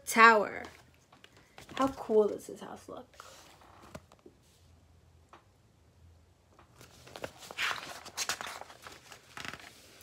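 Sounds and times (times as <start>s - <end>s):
paper rustling page turn: 3.2s - 4.3s, 6.6s - 10.0s.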